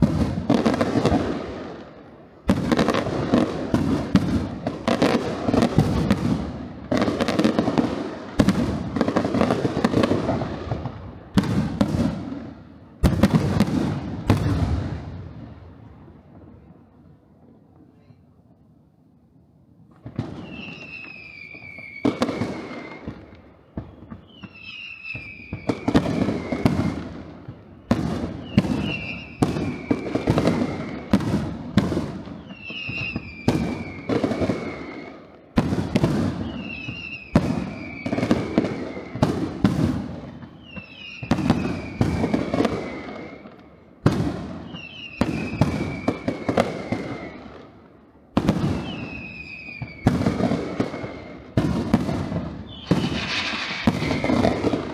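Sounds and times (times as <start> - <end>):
firework bangs: 0.0 - 16.9, 19.9 - 54.9
crackling firework bursts: 0.0 - 17.1, 19.8 - 54.9
falling firework whistle: 20.0 - 47.7, 48.4 - 54.9.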